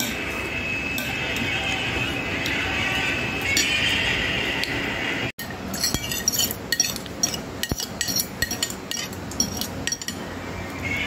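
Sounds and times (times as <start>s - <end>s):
metal spoon clinking on dish: 5.4s - 10.3s.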